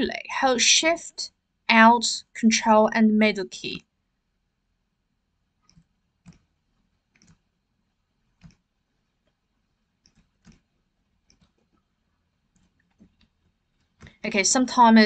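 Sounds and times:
computer mouse clicks: 5.6s - 6.5s, 7.1s - 7.5s, 8.3s - 9.4s, 10.0s - 11.9s, 12.5s - 14.2s
keyboard keys clicking: 10.0s - 10.6s.

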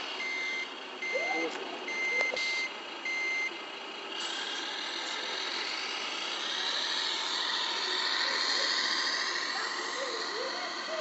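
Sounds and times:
truck reversing beeps: 0.0s - 4.3s
simulated diesel engine: 0.0s - 11.0s.

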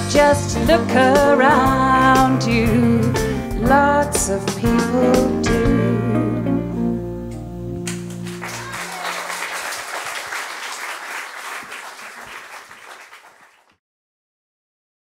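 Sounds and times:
audience applause: 7.9s - 13.8s.

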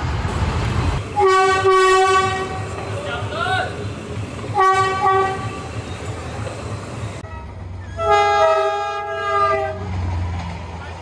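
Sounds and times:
train horn blasts: 1.2s - 2.6s, 4.5s - 5.6s, 7.2s - 9.9s.

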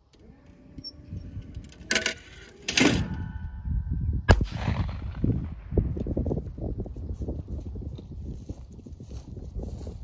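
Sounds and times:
shotgun shot: 4.3s - 6.0s.

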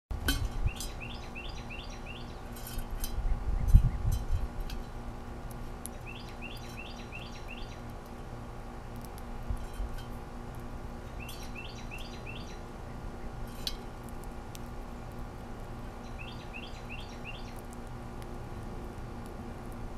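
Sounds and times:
steady low hum: 0.1s - 19.9s
songbird chirping: 0.6s - 2.5s, 5.9s - 7.9s, 11.1s - 13.4s, 16.0s - 17.6s.

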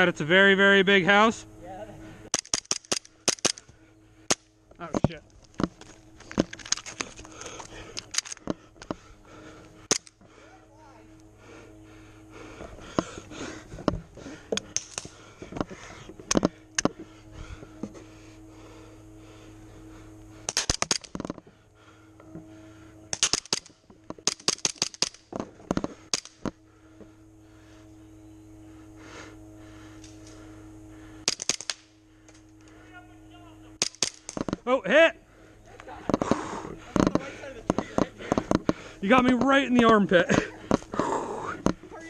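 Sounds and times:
airsoft guns firing bursts: 2.3s - 3.7s, 23.1s - 25.3s, 31.2s - 32.0s, 33.8s - 34.6s.

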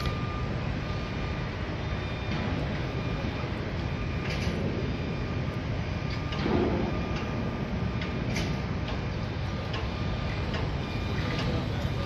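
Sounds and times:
machinery rumble: 0.0s - 12.0s
sharp clicks and knocks: 8.0s - 11.6s.

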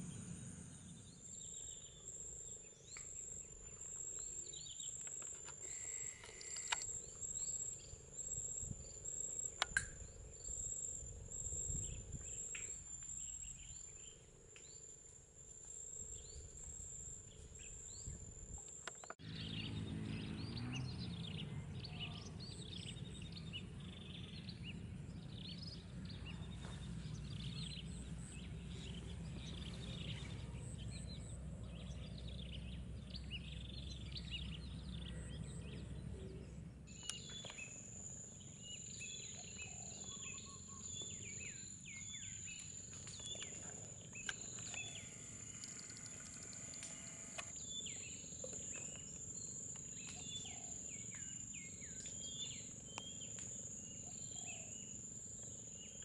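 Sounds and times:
birds chirping: 17.3s - 56.0s
high-pitched insect trill: 36.9s - 56.0s.

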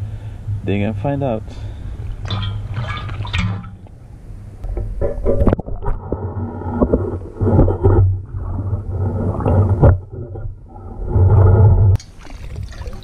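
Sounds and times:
muffled underwater sloshing: 0.0s - 13.0s
water splashing and dripping: 2.0s - 3.9s, 12.0s - 13.0s.

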